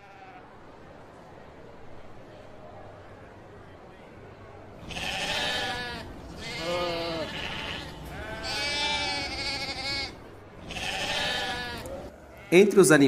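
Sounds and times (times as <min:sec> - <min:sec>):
sheep bleating: 0:00.0 - 0:00.5, 0:04.8 - 0:12.7.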